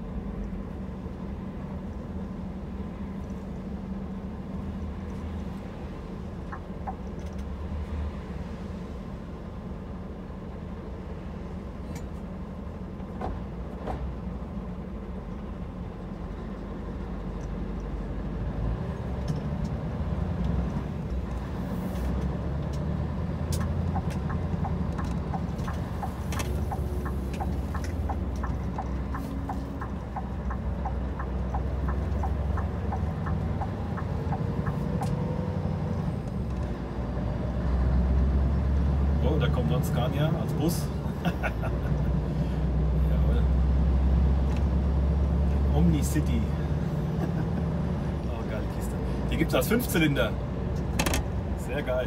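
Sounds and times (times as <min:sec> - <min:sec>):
diesel engine idling and pulling away: 0:00.0 - 0:52.0
turn signal ticking: 0:06.2 - 0:07.5, 0:18.8 - 0:37.4.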